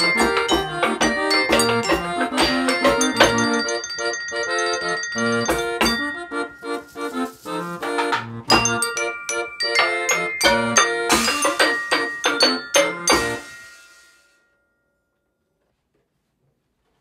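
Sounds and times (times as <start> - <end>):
hand-cranked organ playing: 0.0 - 13.5
pots and bucket percussion: 0.0 - 14.2.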